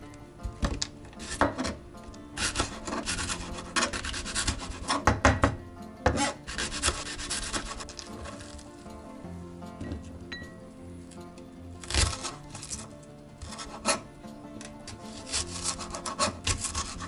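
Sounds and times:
background music: 0.0s - 17.0s
blade tapping cutting board: 0.4s - 1.8s, 2.4s - 8.1s, 14.6s - 17.0s
knife slicing on cutting board: 6.1s - 8.6s, 11.8s - 14.0s, 14.9s - 17.0s.

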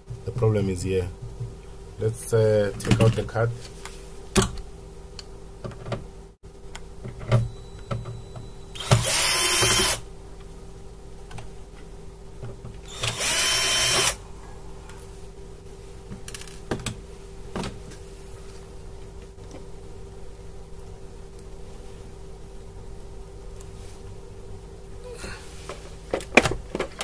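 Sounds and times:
electric screwdriver running: 8.8s - 10.0s, 12.9s - 14.2s.

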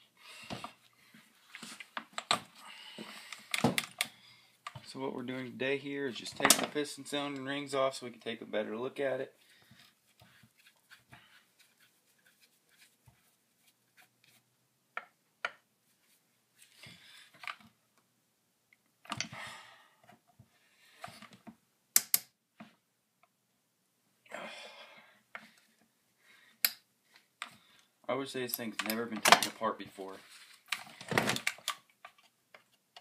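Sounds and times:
sharp snaps: 22.0s - 22.4s.

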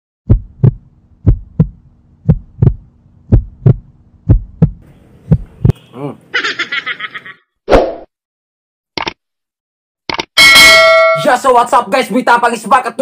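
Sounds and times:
heartbeat thumps: 0.2s - 5.8s
low steady hum: 0.3s - 6.3s.

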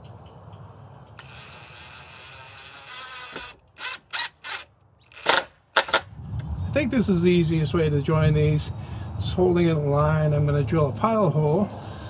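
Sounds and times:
impact driver backing out screw: 1.2s - 6.1s.

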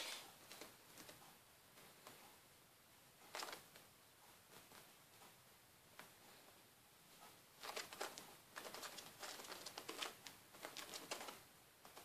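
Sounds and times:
kitten claws scratching fabric: 7.6s - 12.0s.

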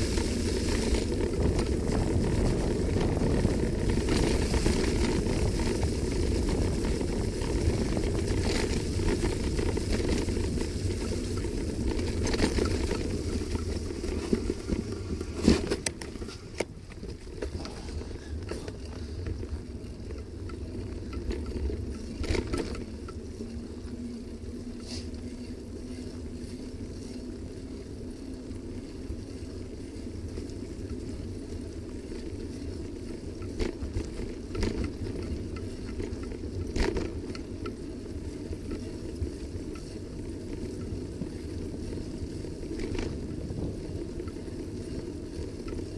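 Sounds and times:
bicycle knocking over bumps: 0.0s - 23.2s, 33.0s - 37.9s
wind rumble on microphone: 0.0s - 45.9s.

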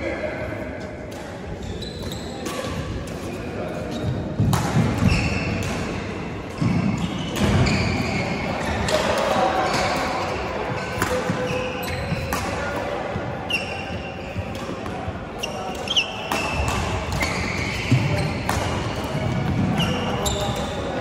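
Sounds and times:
shoes squeaking on court floor: 0.8s - 21.0s
racket striking shuttlecock: 16.2s - 20.0s.

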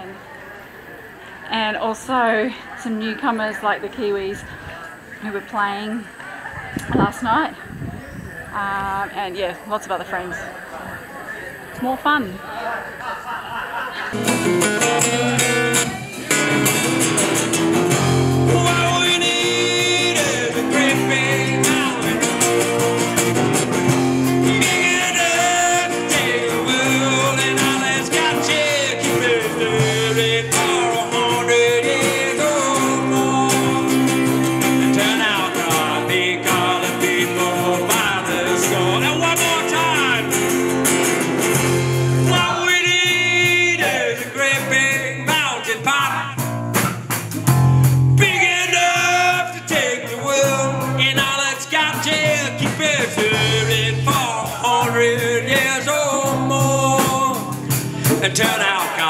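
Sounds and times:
acoustic guitars: 11.2s - 59.0s
person singing: 14.2s - 17.2s, 17.9s - 23.5s, 24.1s - 40.7s, 42.2s - 46.3s, 48.2s - 59.0s.

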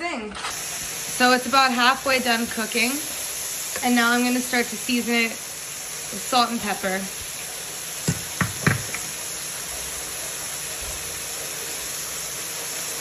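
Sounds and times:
vegetables sizzling in a frying pan: 0.0s - 13.0s
short knocks: 8.1s - 9.0s.

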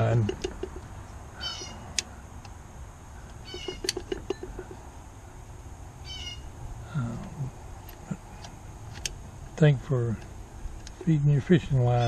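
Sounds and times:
metal parts squeaking: 0.0s - 2.0s, 3.2s - 4.9s.

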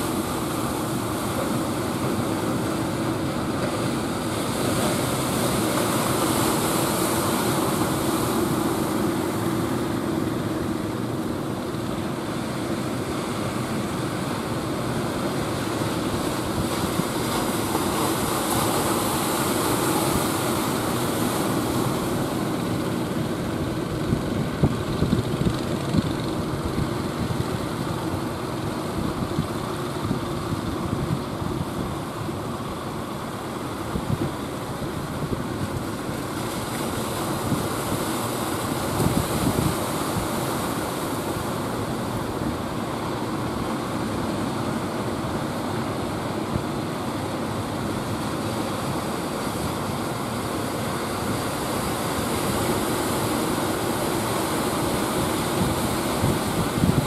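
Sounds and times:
boat engine running: 0.0s - 57.0s
ocean surf breaking: 0.0s - 57.0s
wind buffeting microphone: 22.6s - 32.2s, 38.8s - 40.4s, 55.4s - 57.0s.

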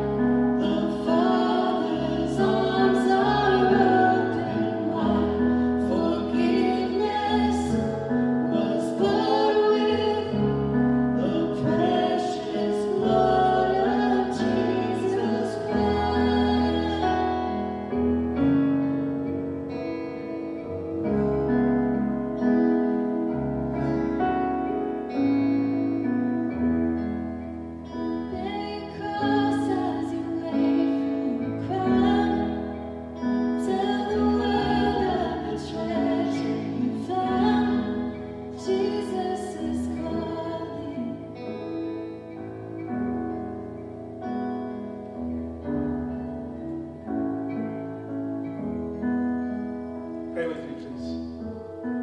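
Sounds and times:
woman singing: 0.0s - 19.1s, 27.9s - 42.5s
acoustic guitars and keyboard: 0.0s - 52.0s.

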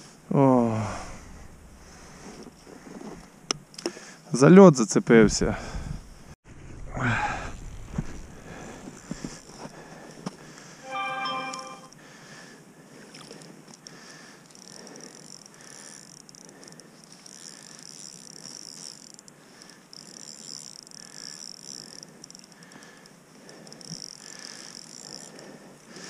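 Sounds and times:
fishing reel whirring: 13.1s - 26.0s.

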